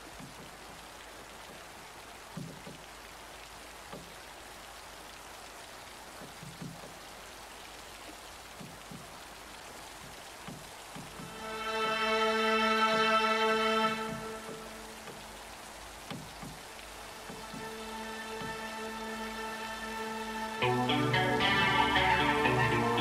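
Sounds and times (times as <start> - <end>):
soft low drips: 0.0 - 23.0
steady rain: 0.0 - 23.0.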